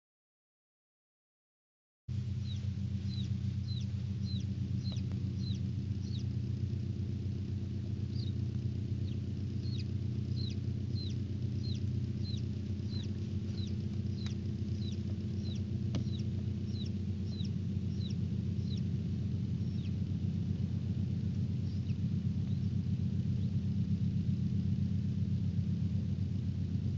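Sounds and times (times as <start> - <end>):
incubator humming: 2.1 - 26.9
chick peeping: 2.3 - 6.4, 8.0 - 20.1, 21.4 - 23.5.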